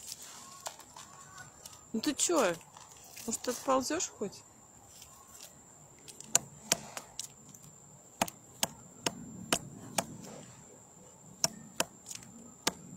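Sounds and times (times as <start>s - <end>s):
woodpecker pecking wood: 6.2s - 7.4s, 8.2s - 10.3s, 11.3s - 12.9s.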